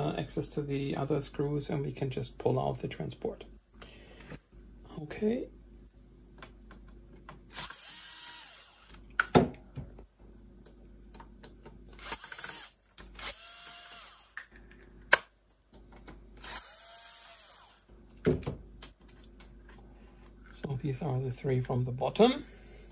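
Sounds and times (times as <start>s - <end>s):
cordless drill motor whine: 5.9s - 9.1s, 11.9s - 14.5s, 16.4s - 17.9s.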